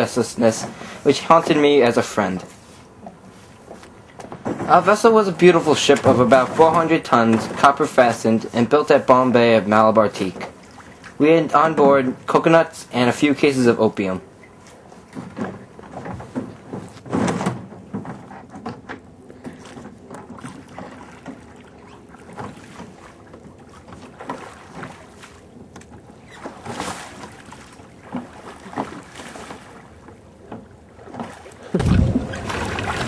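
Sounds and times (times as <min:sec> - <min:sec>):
water splashing and sloshing: 0:00.0 - 0:33.0
low rumble: 0:31.7 - 0:33.0.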